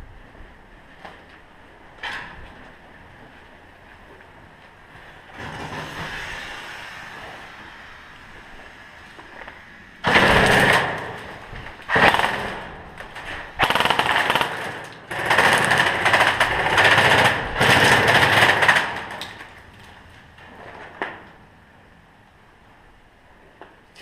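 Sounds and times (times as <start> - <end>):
airsoft gun full auto bursts: 11.9 - 12.6, 13.6 - 18.9.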